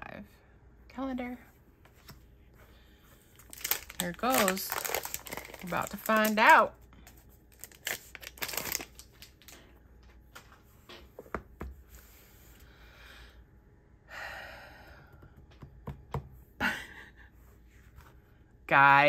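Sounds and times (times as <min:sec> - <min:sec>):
plastic sleeve crinkling: 0:03.3 - 0:09.7
book tapping on a desk: 0:11.2 - 0:11.8.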